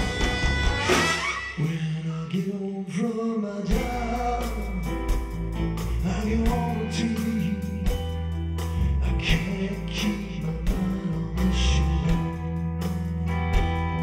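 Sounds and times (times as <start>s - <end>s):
saxophone: 0.0s - 1.7s
deep bass line: 0.0s - 1.8s, 3.7s - 14.0s
live rock band: 0.0s - 2.5s, 3.7s - 14.0s
man singing: 1.4s - 8.2s, 8.8s - 13.1s.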